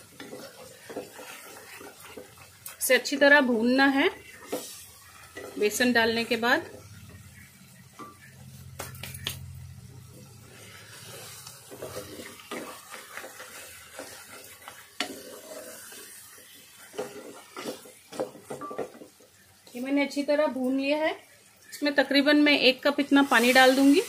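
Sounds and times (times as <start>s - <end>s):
spatula stirring and scraping: 0.0s - 9.2s, 10.0s - 19.9s
low sizzle: 0.0s - 24.0s.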